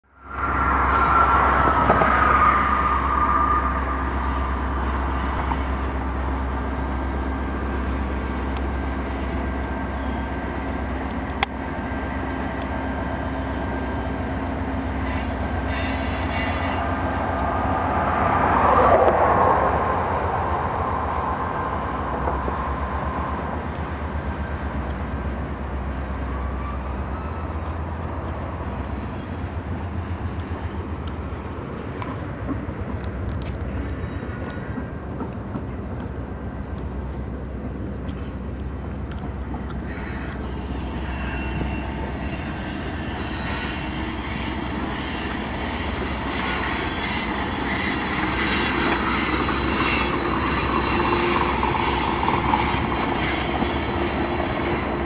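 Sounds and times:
freight train rumbling past: 0.0s - 55.0s
whining tone sliding down: 0.1s - 5.9s.

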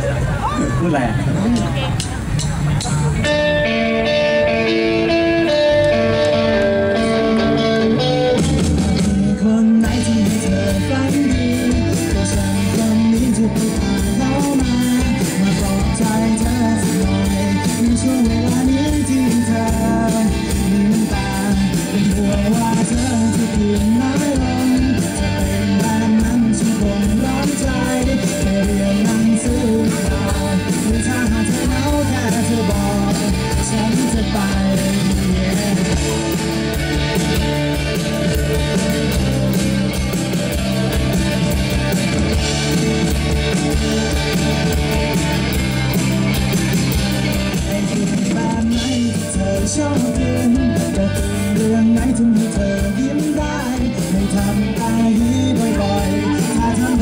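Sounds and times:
bass guitar: 0.0s - 57.0s
drum kit: 0.0s - 57.0s
electric guitars: 0.0s - 57.0s
man singing into microphone: 8.9s - 36.6s, 47.5s - 57.0s.

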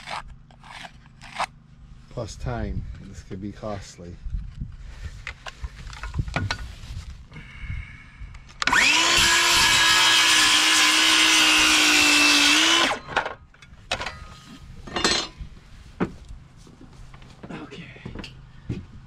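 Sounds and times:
circular saw cutting wood: 0.0s - 1.5s, 8.6s - 13.1s.

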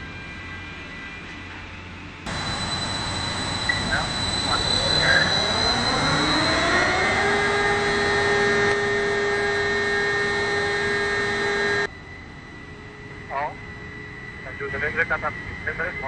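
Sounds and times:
crane hoist motor whine: 0.0s - 16.0s.

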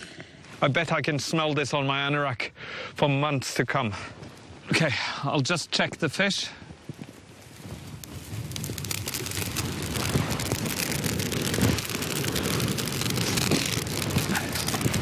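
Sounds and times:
fire crackling and popping: 3.4s - 15.0s.

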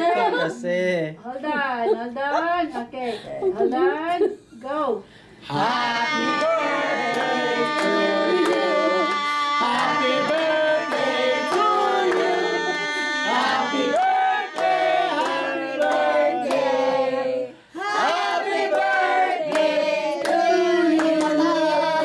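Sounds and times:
people singing a celebration song: 5.4s - 22.0s
people clapping along: 5.8s - 22.0s.

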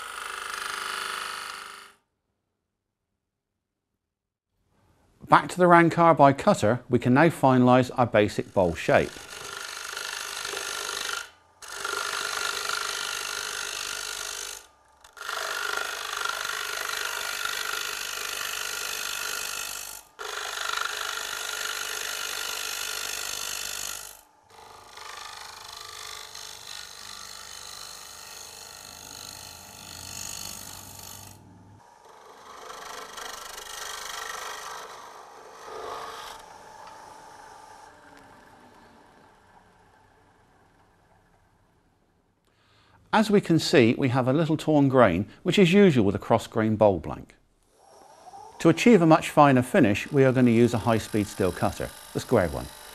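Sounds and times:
lathe tool scraping wood: 7.2s - 41.6s, 47.8s - 52.9s.

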